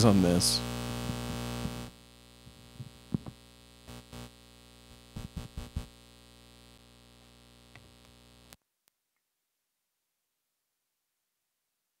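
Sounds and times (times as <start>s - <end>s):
mains hum and buzz: 0.0s - 8.6s.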